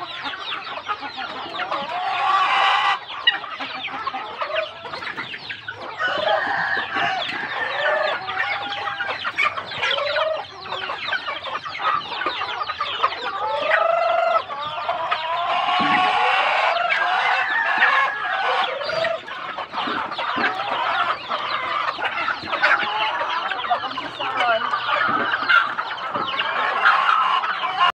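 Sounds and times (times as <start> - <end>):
chickens clucking and calling: 0.0 - 27.9.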